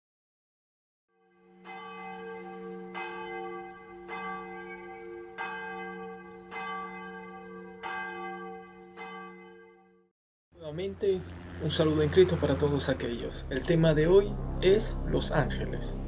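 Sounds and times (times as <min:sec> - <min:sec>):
large bell tolling: 0:01.4 - 0:09.8
steady low hum: 0:10.8 - 0:16.0.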